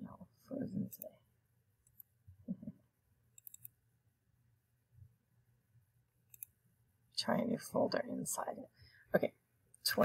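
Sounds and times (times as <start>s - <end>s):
faint computer mouse clicks: 3.3s - 3.8s, 6.3s - 6.6s.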